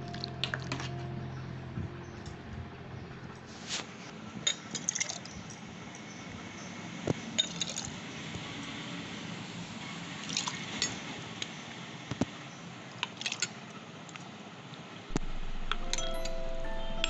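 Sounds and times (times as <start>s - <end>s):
background music with held tones: 0.0s - 3.6s, 15.1s - 17.0s.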